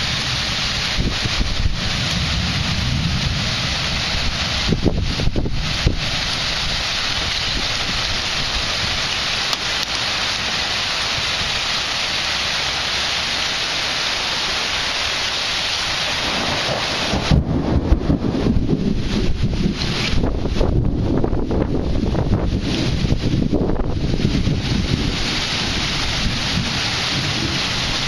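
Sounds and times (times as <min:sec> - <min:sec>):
heavy rain hiss: 0:00.0 - 0:28.0
wind buffeting microphone: 0:00.1 - 0:09.2, 0:16.1 - 0:28.0.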